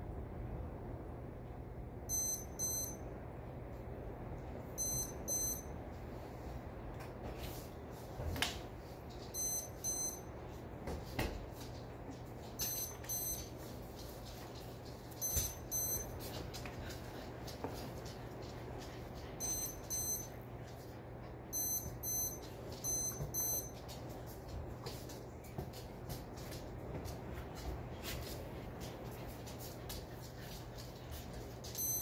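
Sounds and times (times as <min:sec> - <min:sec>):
lightning detector double beeps: 0:15.2 - 0:16.1, 0:21.6 - 0:23.7.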